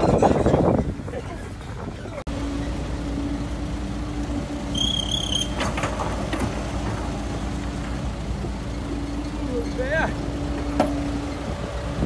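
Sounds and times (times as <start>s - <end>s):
diesel engines running: 0.0s - 12.0s
high squeal: 4.7s - 5.7s.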